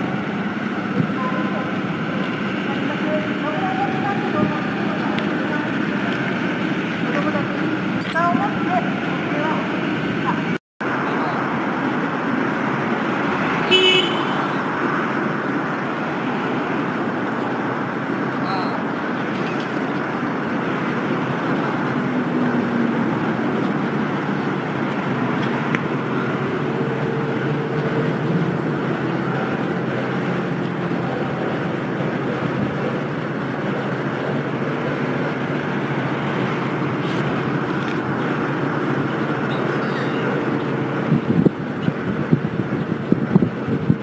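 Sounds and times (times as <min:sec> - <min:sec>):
road traffic rumble: 0:00.0 - 0:44.0
wind buffeting microphone: 0:16.7 - 0:44.0.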